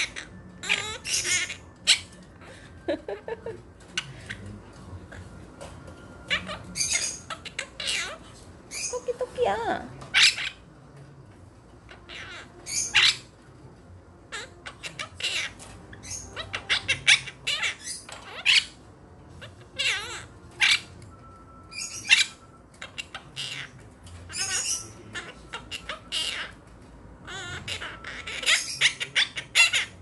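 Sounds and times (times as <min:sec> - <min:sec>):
parrots chirping and squawking: 0:00.0 - 0:10.8, 0:11.4 - 0:30.0.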